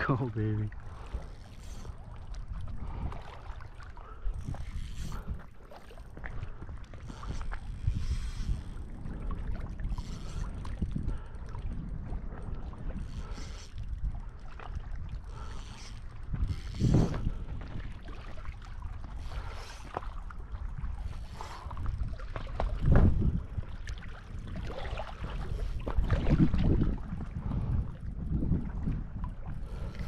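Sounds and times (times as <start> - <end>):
water lapping at a boat: 0.0 - 30.0
wind on microphone: 0.0 - 30.0
fishing reel cranking: 0.8 - 6.3, 6.9 - 17.7, 18.9 - 22.1, 25.4 - 26.0, 29.5 - 30.0.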